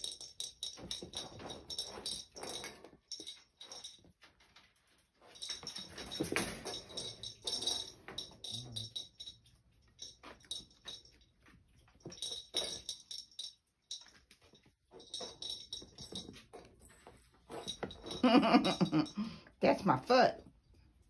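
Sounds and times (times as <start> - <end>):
cat toy balls clicking and rattling: 0.0 - 19.3
woman speaking: 18.8 - 20.5.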